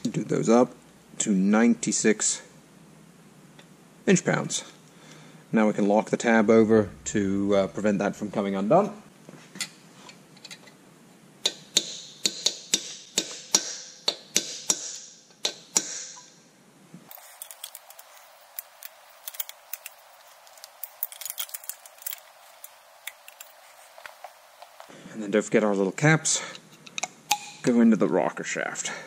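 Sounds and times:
faint clicks of metal parts: 9.6s - 10.8s, 17.1s - 24.3s
sharp metallic tapping: 11.4s - 16.3s.

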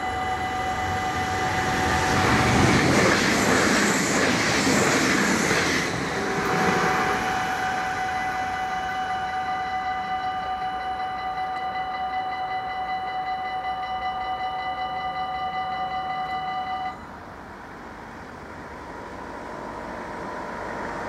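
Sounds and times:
level crossing bell ringing: 0.0s - 1.8s, 7.6s - 17.0s
road vehicle rushing: 0.5s - 8.1s, 17.0s - 21.0s.

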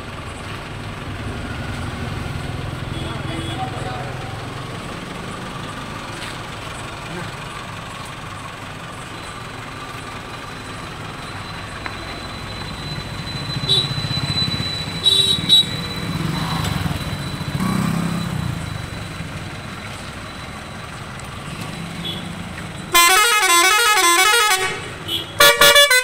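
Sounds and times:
truck engine hum: 0.0s - 26.0s
musical air horn: 22.9s - 26.0s.

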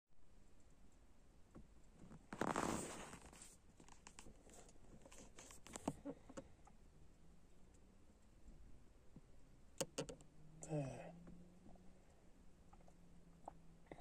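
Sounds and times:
soft handling clicks and rustles: 0.5s - 6.8s.

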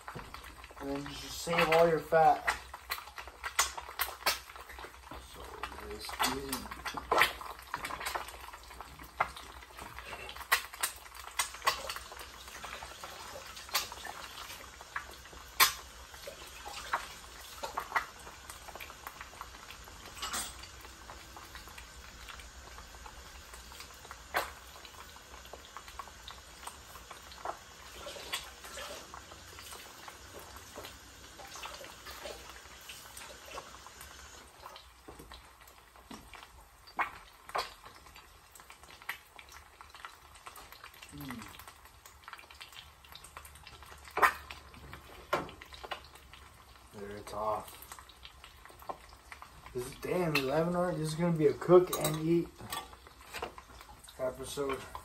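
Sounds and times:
eggs sizzling in a pan: 0.0s - 55.0s
fat crackling and popping: 0.0s - 55.0s.

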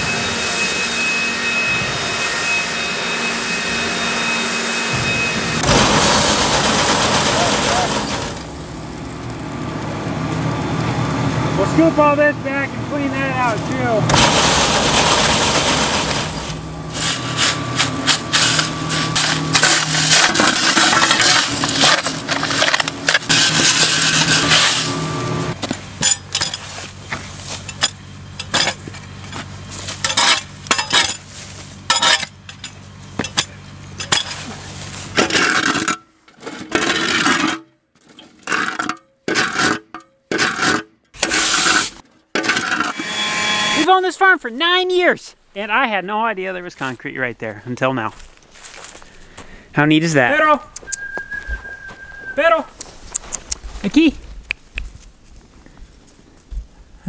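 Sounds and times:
steady machine hum: 0.0s - 35.3s, 42.9s - 46.6s
pitchfork scraping concrete: 3.2s - 8.6s, 13.4s - 43.9s.

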